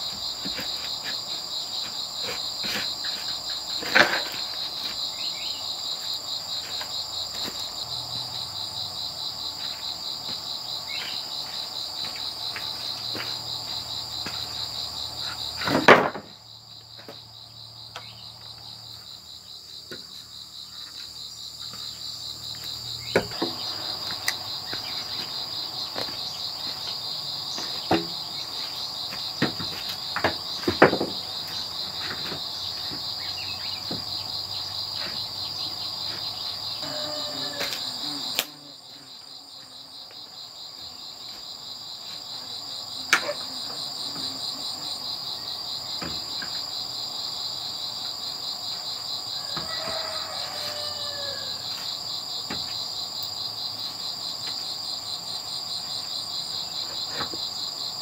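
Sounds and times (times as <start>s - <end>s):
bamboo poles and wood knocking: 0.0s - 5.1s, 15.2s - 16.4s, 22.5s - 26.8s, 27.6s - 28.2s, 29.1s - 33.1s, 52.5s - 52.8s
high-pitched insect chorus: 0.0s - 58.0s.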